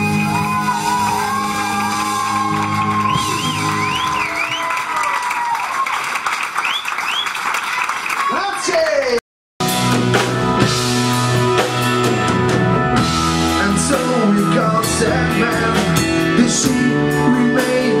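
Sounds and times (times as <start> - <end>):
person singing: 0.0 - 3.2, 13.5 - 18.0
bass guitar: 0.0 - 4.2, 9.6 - 18.0
drums: 0.0 - 5.0, 9.6 - 18.0
electric guitar: 9.6 - 18.0.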